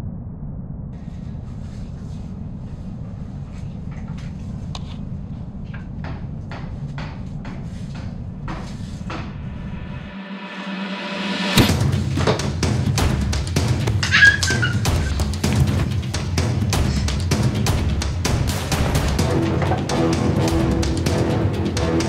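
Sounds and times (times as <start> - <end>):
low steady rumble: 0.0 - 14.2.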